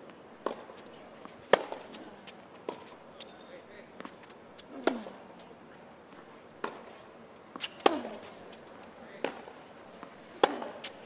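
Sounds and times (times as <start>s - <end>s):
racket hitting tennis ball: 0.4s - 3.0s, 4.0s - 5.2s, 6.6s - 6.9s, 7.5s - 11.0s
tennis ball bouncing: 0.4s - 3.0s, 4.0s - 5.2s, 6.1s - 11.0s.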